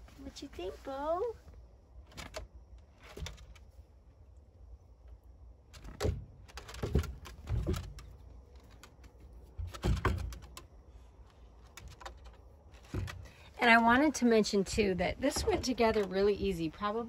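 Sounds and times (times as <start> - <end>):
knocks and rattles from hutch: 5.7 - 10.8, 11.6 - 14.1, 14.7 - 16.6.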